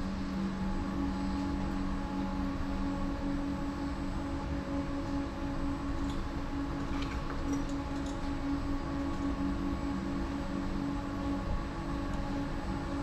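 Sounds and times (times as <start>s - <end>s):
train running gear hum: 4.5s - 13.0s.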